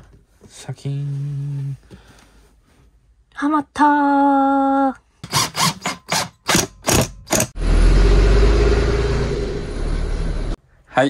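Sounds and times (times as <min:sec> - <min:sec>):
diesel bus engine starting: 0:07.5 - 0:10.6.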